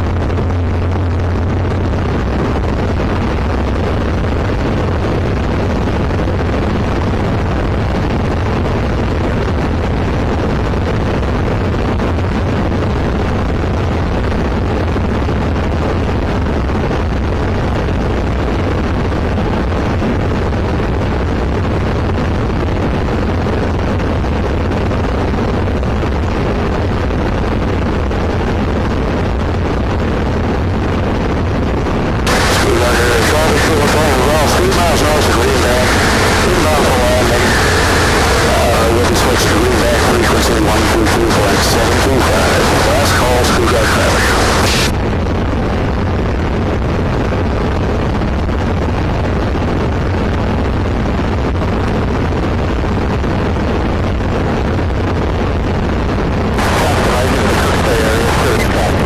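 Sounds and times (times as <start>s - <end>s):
light aircraft engine drone: 0.0s - 46.0s, 56.5s - 59.0s
air rushing past cockpit: 32.3s - 45.0s, 56.6s - 59.0s.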